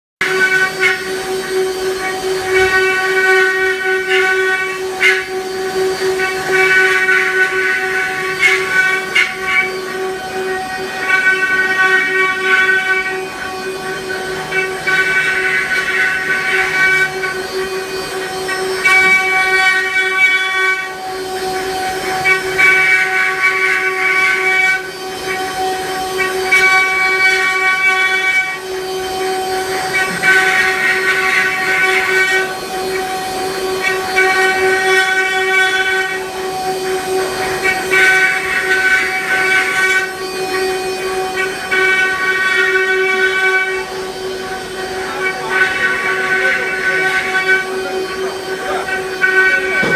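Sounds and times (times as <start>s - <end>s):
cnc router spindles whining: 0.2s - 49.9s
higher cutting tones: 0.2s - 49.9s.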